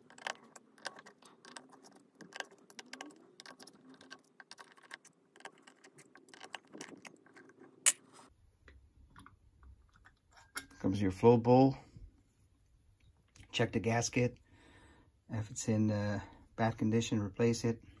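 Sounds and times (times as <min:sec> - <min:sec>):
screwdriver clicking and scraping: 0:00.0 - 0:08.0.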